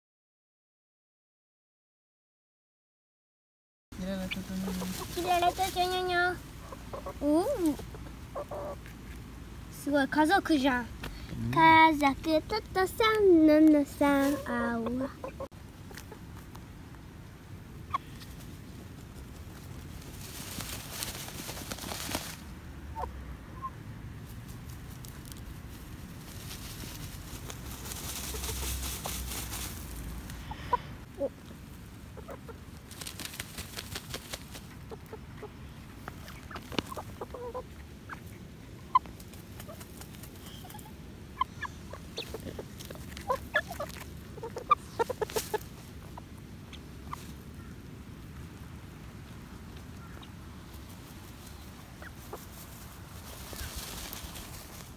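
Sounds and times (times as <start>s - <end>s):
chickens clucking softly: 4.0s - 9.3s, 14.3s - 17.0s, 22.9s - 23.8s, 30.3s - 33.0s, 34.0s - 54.2s
rustling and scratching in dirt: 4.0s - 23.1s, 24.1s - 54.9s.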